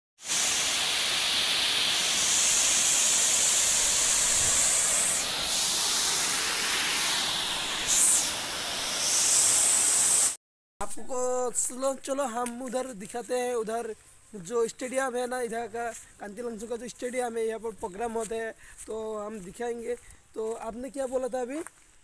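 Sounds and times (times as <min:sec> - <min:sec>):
waterfall rushing: 0:00.2 - 0:10.4.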